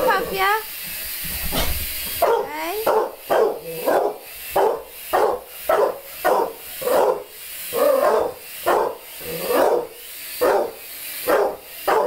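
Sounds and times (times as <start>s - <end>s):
dog barking: 2.2s - 12.0s.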